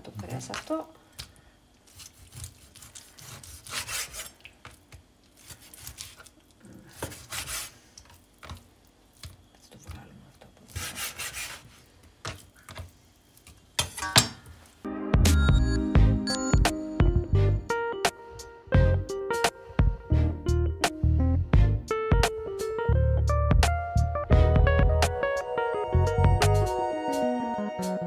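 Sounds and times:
knife sawing through meat: 0:01.9 - 0:04.3, 0:07.0 - 0:07.8, 0:10.7 - 0:11.7.

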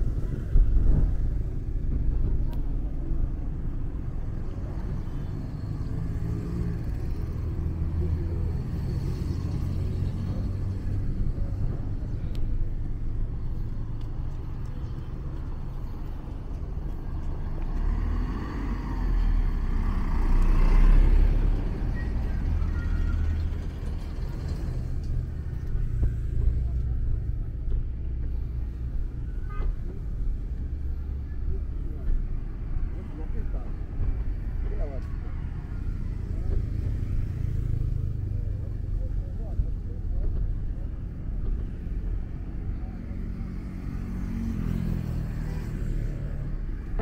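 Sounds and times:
low rumble of road traffic: 0:00.0 - 0:47.0
vehicle passing: 0:01.0 - 0:28.9.

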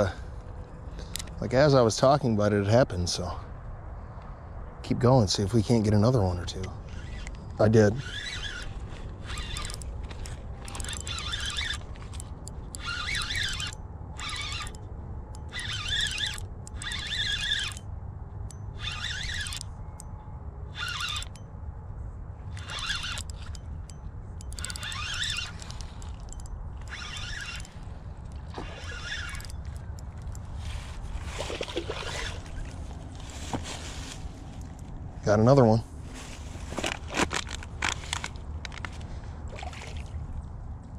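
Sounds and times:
low wind rumble: 0:00.0 - 0:40.9
fishing reel buzzing: 0:06.8 - 0:17.9, 0:18.7 - 0:19.7, 0:20.7 - 0:21.5, 0:22.5 - 0:32.7
water splashing: 0:31.2 - 0:33.0, 0:39.5 - 0:40.2.

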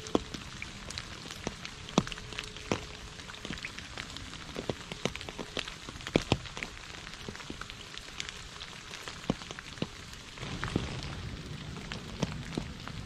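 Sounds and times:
rain falling into a puddle: 0:00.0 - 0:13.0
low rumble: 0:10.4 - 0:13.0.

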